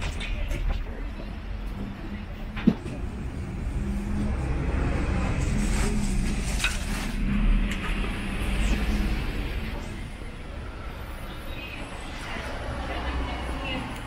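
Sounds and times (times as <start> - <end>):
street noise: 0.0 - 14.0
vehicle engines running: 0.0 - 14.0
vehicle passing: 3.4 - 10.3.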